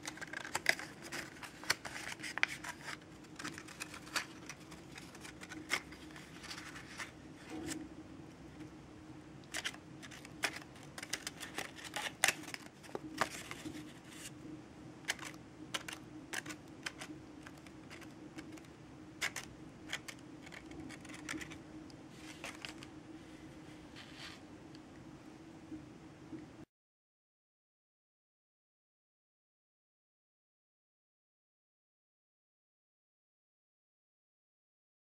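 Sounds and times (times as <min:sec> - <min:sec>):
paper crinkling and crackling: 0:00.0 - 0:07.8, 0:09.4 - 0:14.4, 0:15.0 - 0:24.4
steady low hum: 0:00.0 - 0:26.6.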